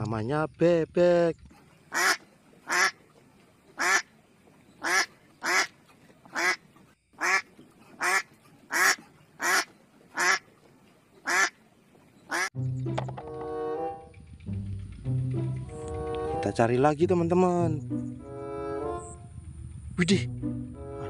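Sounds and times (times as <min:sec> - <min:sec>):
duck quacking: 0:01.9 - 0:03.0, 0:03.8 - 0:04.1, 0:04.8 - 0:06.6, 0:07.2 - 0:10.5, 0:11.2 - 0:11.6, 0:12.3 - 0:12.5.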